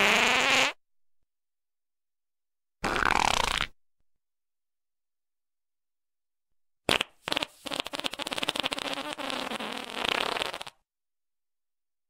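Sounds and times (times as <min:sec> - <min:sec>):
fart sound effect: 0:00.0 - 0:00.8, 0:02.8 - 0:03.8, 0:06.9 - 0:10.8.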